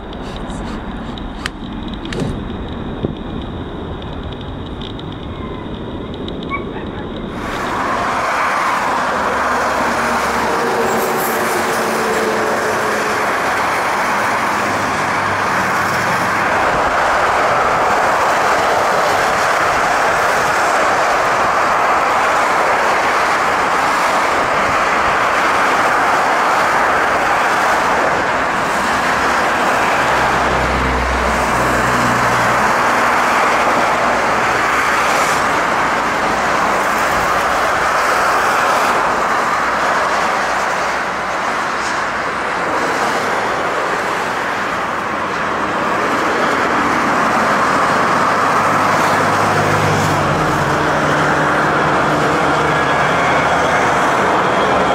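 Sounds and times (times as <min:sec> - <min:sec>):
jet engines roaring at takeoff: 0:00.0 - 0:54.9.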